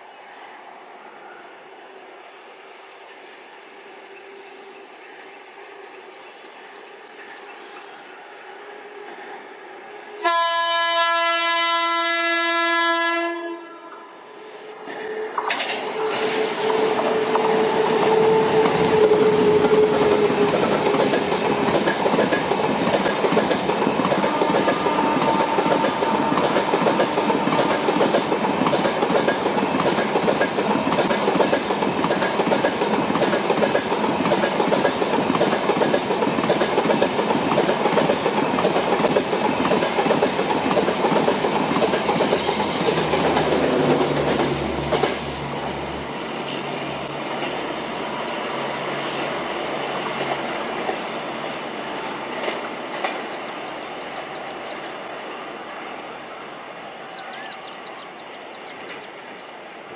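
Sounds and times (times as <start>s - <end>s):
train wheels clattering over rails: 15.1s - 54.9s.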